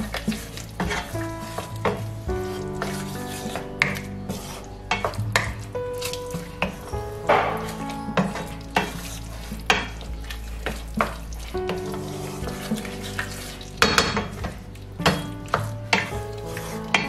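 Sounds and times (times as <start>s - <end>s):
wooden spatula scraping a pan: 0.0s - 17.0s
sauce sizzling: 5.9s - 17.0s.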